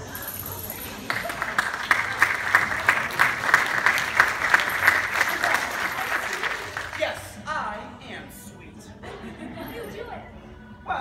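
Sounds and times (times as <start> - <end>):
audience applauding: 1.0 - 7.2.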